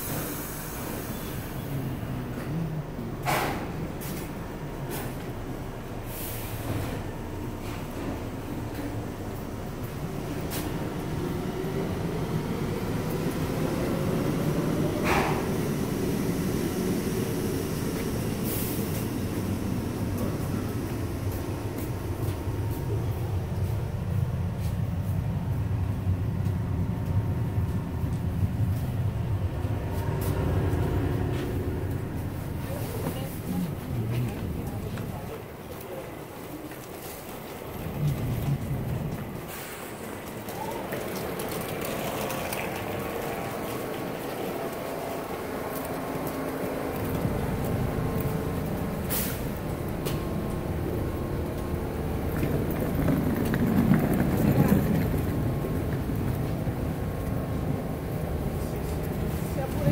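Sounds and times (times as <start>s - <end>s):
subway car rumbling on rails: 0.0s - 59.9s
footsteps: 29.6s - 40.5s.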